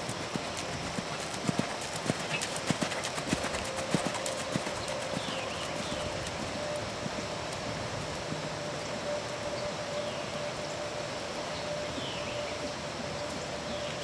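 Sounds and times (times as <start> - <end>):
horse hoofbeats on sand: 0.0 - 7.8.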